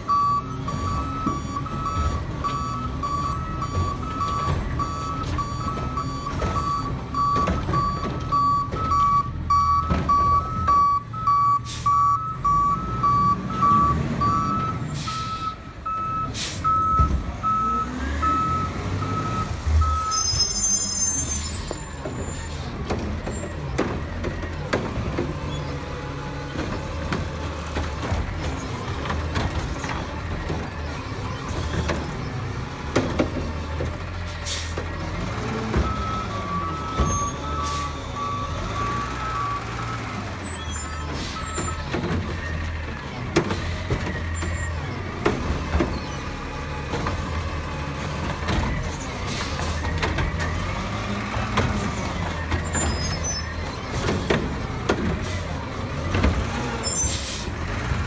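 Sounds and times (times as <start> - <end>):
backup alarms beeping: 0.0 - 20.5, 35.8 - 41.9.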